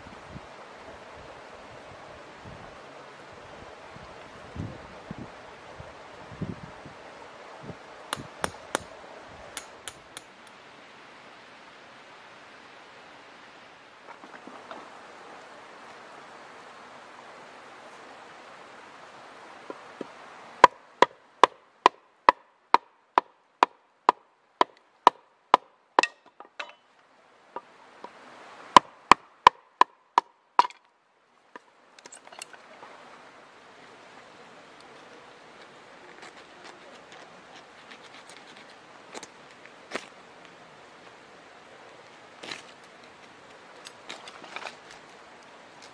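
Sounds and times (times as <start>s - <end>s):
faint outdoor ambience: 0.0s - 45.9s.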